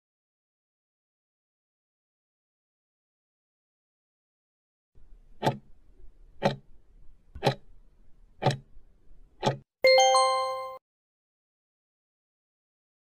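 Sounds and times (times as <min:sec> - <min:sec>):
clock ticking: 0:05.4 - 0:05.7, 0:06.4 - 0:06.7, 0:07.4 - 0:07.7, 0:08.4 - 0:08.7, 0:09.4 - 0:09.6
bright multi-note chime: 0:09.8 - 0:10.8.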